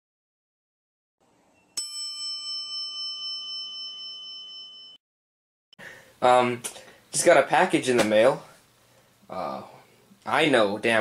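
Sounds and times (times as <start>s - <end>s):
bell ringing: 1.8s - 5.0s.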